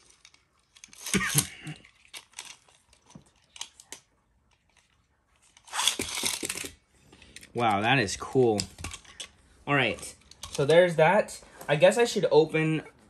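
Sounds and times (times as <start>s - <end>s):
small plastic parts clicking: 0.0s - 7.6s, 10.0s - 10.7s.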